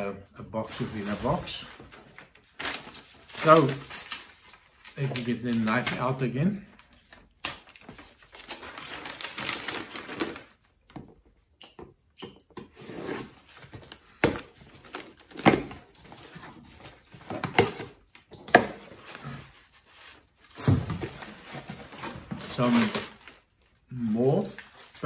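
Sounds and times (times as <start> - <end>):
packing paper rustling: 0.6 - 10.5, 18.9 - 25.0.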